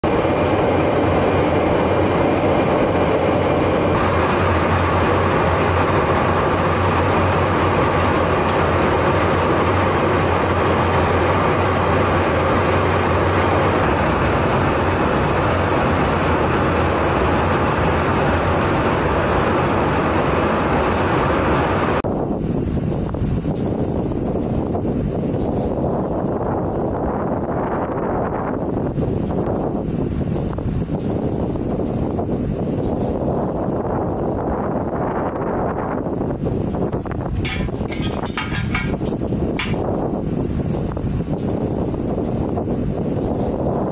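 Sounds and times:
low hum: 0.0s - 26.2s, 36.0s - 40.9s
aircraft cabin airflow roar: 0.0s - 43.9s.

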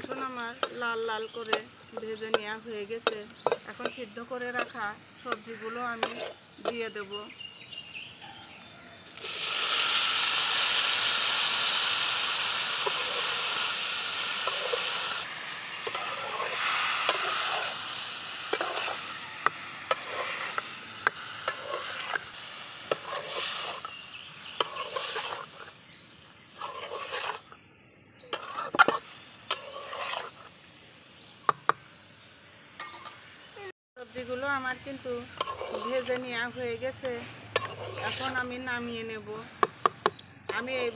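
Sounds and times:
metal spatula scraping pan: 0.0s - 6.8s, 12.8s - 13.6s, 14.3s - 27.6s, 28.3s - 30.5s, 32.8s - 33.2s, 35.3s - 36.4s, 37.0s - 38.6s, 40.5s - 40.9s
vegetables sizzling in hot oil: 9.0s - 27.5s, 28.3s - 31.4s, 35.2s - 36.1s, 37.5s - 38.4s.

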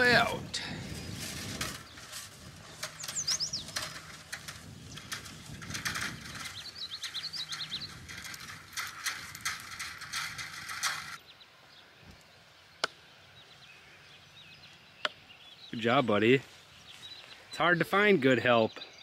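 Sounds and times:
wire reel clicking rattle: 0.0s - 11.2s
songbird chirping: 0.0s - 19.0s.

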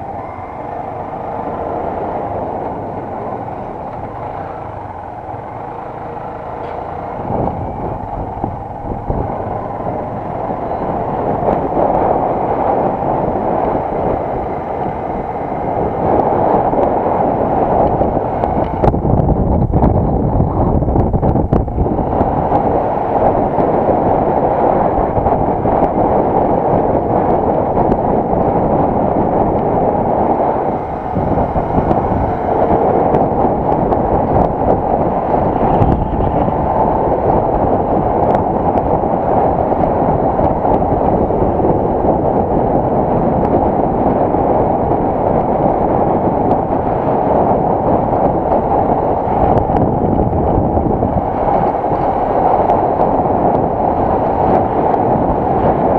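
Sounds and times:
wind buffeting microphone: 0.0s - 55.9s.

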